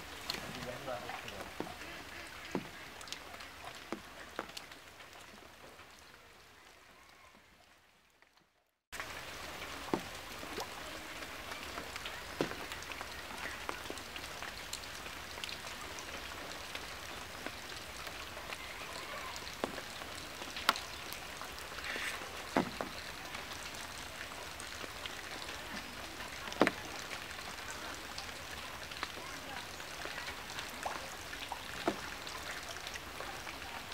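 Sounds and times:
hiss of falling water: 16.9 - 33.9
net knocking against wooden boat: 22.6 - 22.9.

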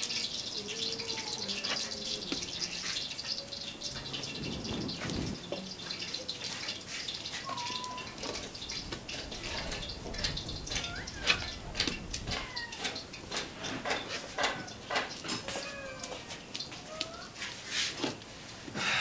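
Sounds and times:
short chirping animal calls: 7.4 - 8.2.

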